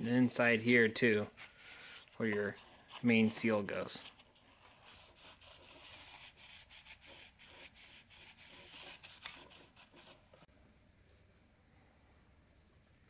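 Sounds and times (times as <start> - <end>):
paper towel rubbing and scraping: 0.2 - 10.5.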